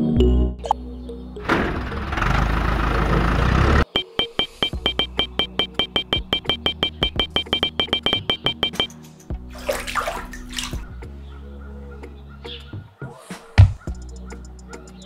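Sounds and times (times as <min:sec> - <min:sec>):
music with fast ticking beat: 0:03.9 - 0:08.9, 0:13.9 - 0:15.0
water pouring: 0:09.5 - 0:10.8.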